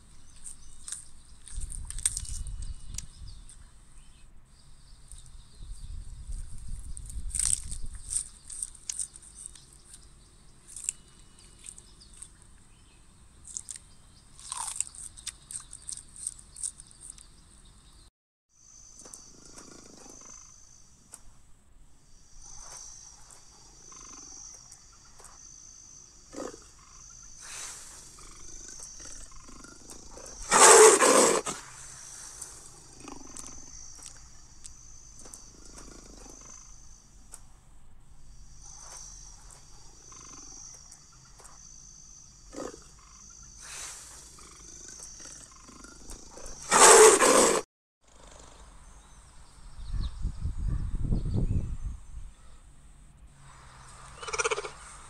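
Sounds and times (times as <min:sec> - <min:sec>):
insect chirping: 0:00.0 - 0:49.7
leopard roar: 0:19.3 - 0:20.6, 0:26.3 - 0:31.8, 0:32.5 - 0:33.7, 0:35.5 - 0:36.8, 0:42.5 - 0:48.6, 0:54.1 - 0:55.0.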